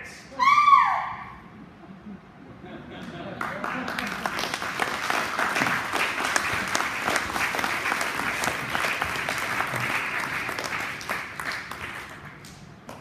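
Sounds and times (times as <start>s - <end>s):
audience applauding: 3.2s - 13.0s.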